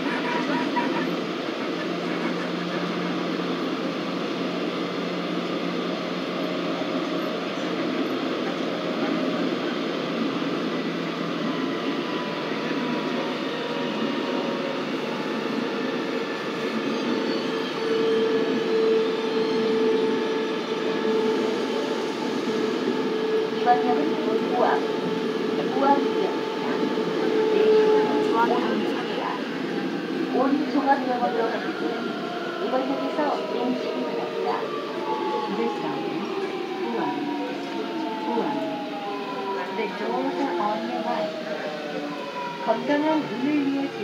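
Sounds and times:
subway wheels rumbling on rails: 0:00.0 - 0:44.0.

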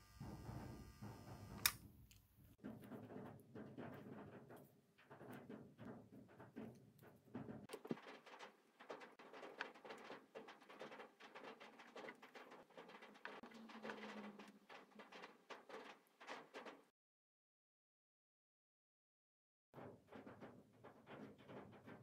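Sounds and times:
roller chain clicking: 0:07.7 - 0:16.9.

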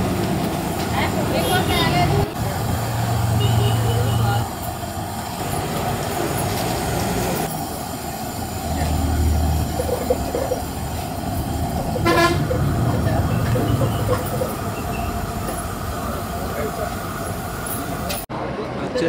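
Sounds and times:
steady low rumble: 0:08.2 - 0:16.6.

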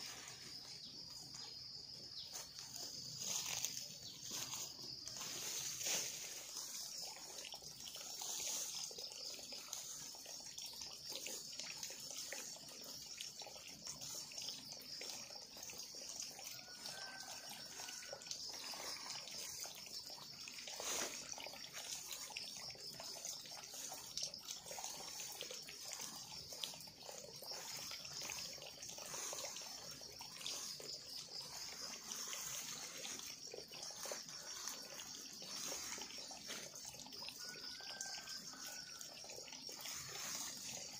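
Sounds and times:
scraping dry leaves and soil: 0:00.0 - 0:01.4, 0:02.2 - 0:07.4, 0:08.0 - 0:09.0, 0:16.5 - 0:19.5, 0:20.6 - 0:22.3, 0:25.1 - 0:36.8, 0:39.8 - 0:40.9.

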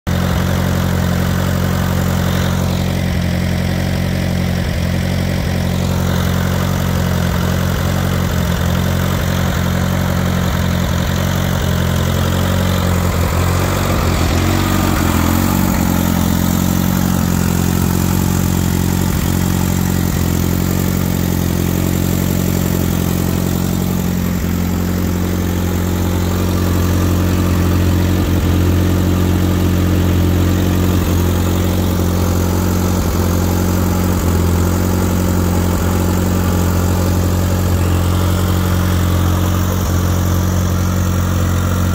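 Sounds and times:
tractor engine idling: 0:00.1 - 0:41.9.

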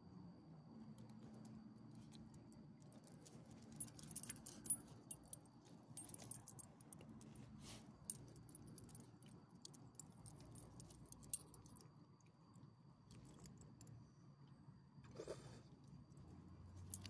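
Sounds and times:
dog tags jingling: 0:03.8 - 0:05.4, 0:06.0 - 0:06.7.

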